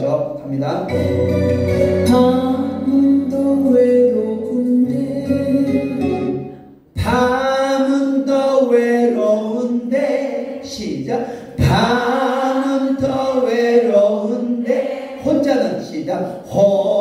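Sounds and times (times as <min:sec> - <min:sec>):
person singing with accompaniment: 0:00.9 - 0:10.8.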